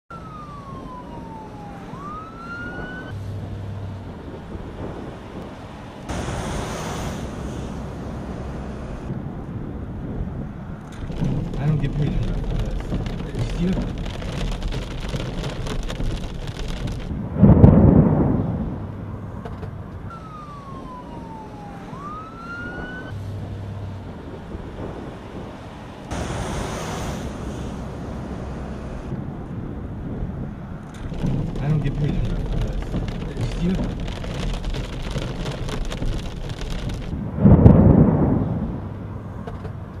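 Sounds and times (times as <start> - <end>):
emergency siren wailing: 0.1 - 3.3, 18.0 - 23.4
road noise: 0.1 - 40.0
rain and wind beating on a car: 0.2 - 40.0
thunder rumble: 0.3 - 40.0
rain hitting a windshield: 10.9 - 18.0, 30.9 - 39.7.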